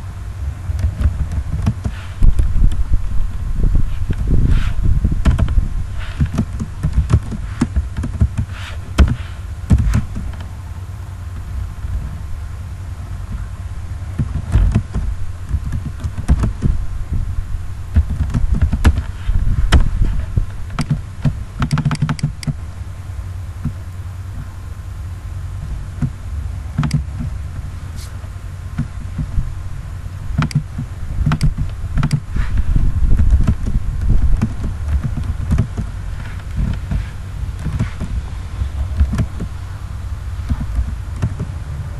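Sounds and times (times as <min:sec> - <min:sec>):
steady low hum: 0:00.0 - 0:41.9
keyboard typing clicks: 0:21.6 - 0:22.6, 0:30.4 - 0:32.2.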